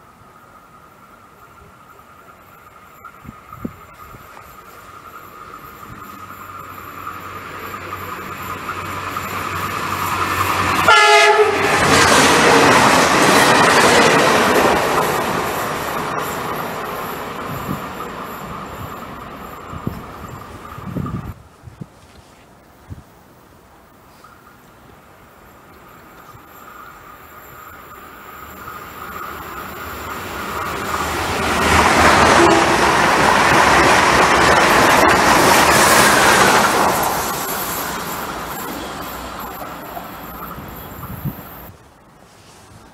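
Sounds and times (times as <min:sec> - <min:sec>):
train wheels rumbling on rails: 0:01.0 - 0:21.4, 0:25.4 - 0:41.8
train horn blast: 0:10.8 - 0:11.9, 0:32.2 - 0:32.9.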